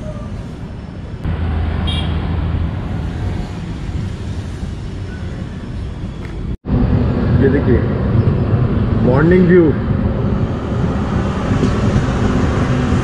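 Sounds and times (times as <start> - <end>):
rushing air: 0.4 - 13.0
train wheels rumbling on rails: 9.8 - 13.0.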